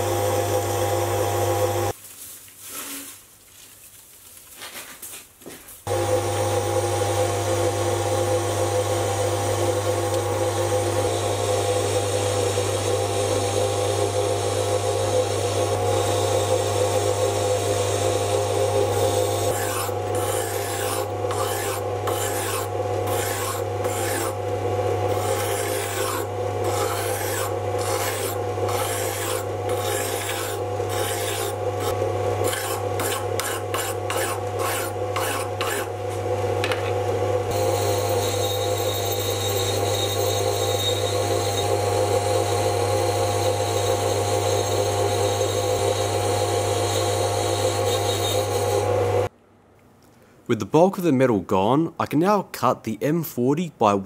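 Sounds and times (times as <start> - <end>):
lathe motor hum: 0.0 - 1.9, 5.9 - 49.3
file stroking spinning steel: 5.9 - 49.3
tool turning steel: 15.4 - 49.3.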